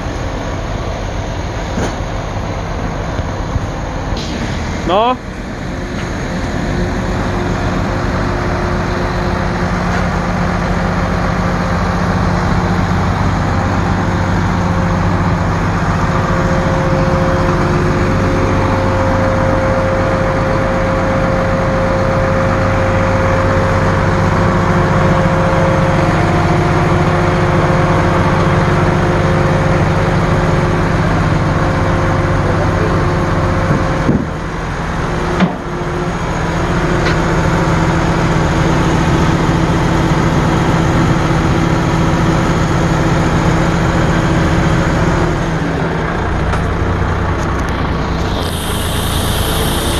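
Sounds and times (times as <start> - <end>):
steady whine: 0.0 - 49.9
truck diesel engine running: 0.0 - 49.9.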